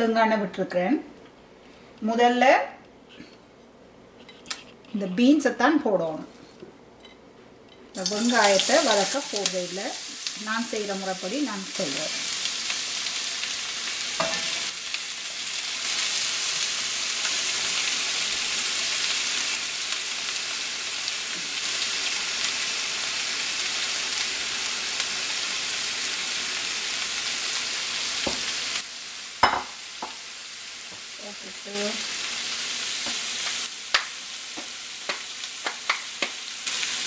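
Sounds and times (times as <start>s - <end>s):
green beans sizzling in oil: 7.9s - 37.0s.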